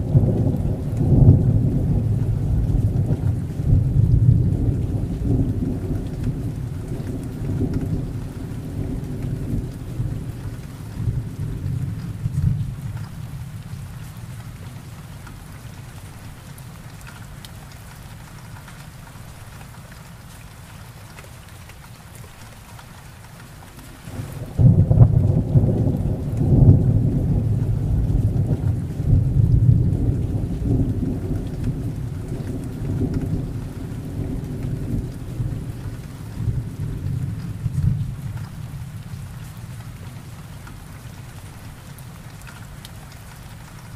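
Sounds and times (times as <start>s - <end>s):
thunder rumbling: 0.0s - 14.6s, 24.0s - 40.6s
heavy rain: 0.0s - 43.9s.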